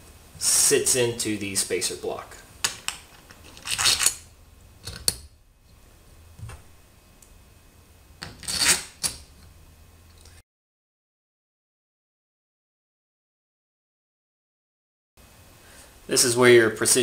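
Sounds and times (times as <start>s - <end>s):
small metal parts clinking: 2.6s - 5.1s.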